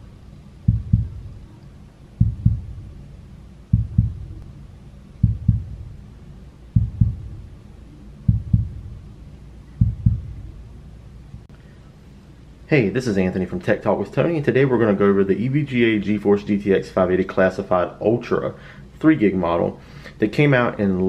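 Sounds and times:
heartbeat thumps: 0.6 - 1.4, 2.2 - 3.1, 3.7 - 4.5, 5.2 - 6.1, 6.7 - 7.6, 8.2 - 9.1, 9.8 - 10.6.

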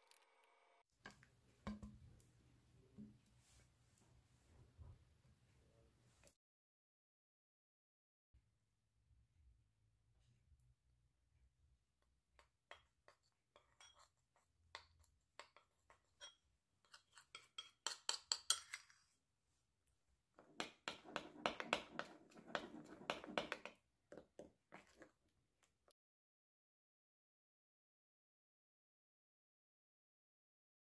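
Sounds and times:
metal spoon scraping ceramic bowl: 12.7 - 19.0, 20.5 - 23.8.

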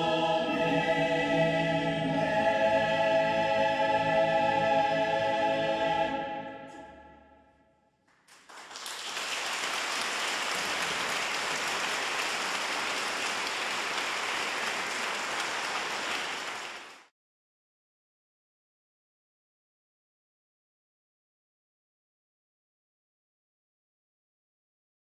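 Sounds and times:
choir holding a chord: 0.0 - 7.4
audience applause: 8.2 - 17.1.

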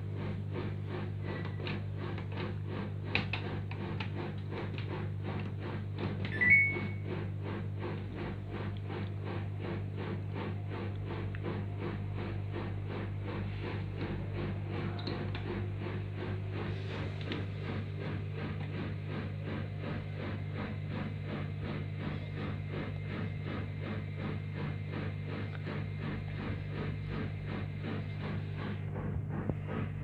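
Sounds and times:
washing machine humming: 0.0 - 30.0
short rising beep: 6.4 - 7.0.

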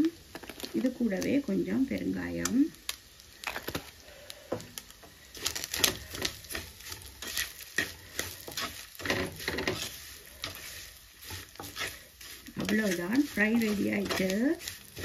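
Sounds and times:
wooden spatula scraping clay pot: 5.3 - 15.0.

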